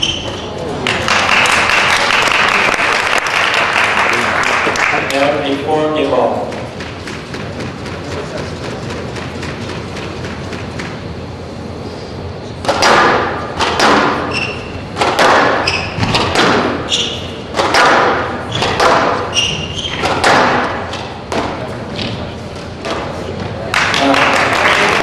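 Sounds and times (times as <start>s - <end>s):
shoes squeaking on court floor: 0.0s - 0.7s, 14.2s - 17.5s, 18.4s - 23.6s
squash ball hits echoing: 6.3s - 11.1s, 12.6s - 24.2s.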